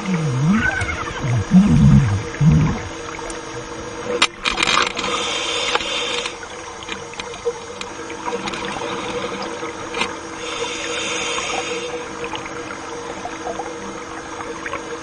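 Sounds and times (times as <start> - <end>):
underwater clicks and crackles: 0.0 - 10.3
faint steady hum: 0.0 - 15.0
hiss: 5.0 - 6.4, 10.4 - 12.1.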